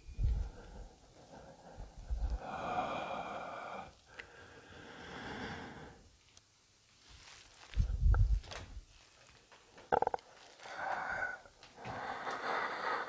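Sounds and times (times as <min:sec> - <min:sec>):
person breathing: 0:00.0 - 0:06.1, 0:10.4 - 0:13.0.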